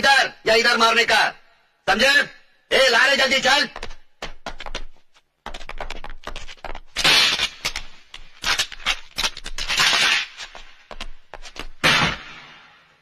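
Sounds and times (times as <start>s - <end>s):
loud bangs: 11.8s - 12.9s.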